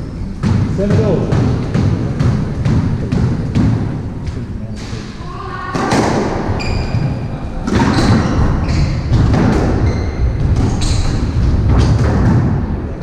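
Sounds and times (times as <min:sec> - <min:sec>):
squash ball hitting rackets and walls: 0:00.1 - 0:13.0
shoes squeaking on wooden floor: 0:06.4 - 0:11.9.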